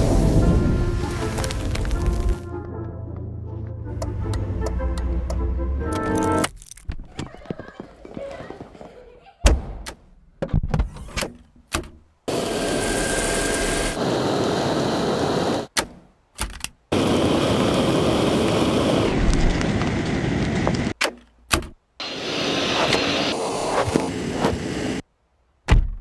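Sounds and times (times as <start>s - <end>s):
vacuum motor suction: 12.3s - 15.7s.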